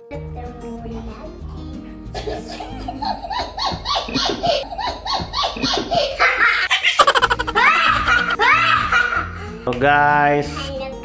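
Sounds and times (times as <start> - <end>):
boy laughing hard: 3.2 - 9.3.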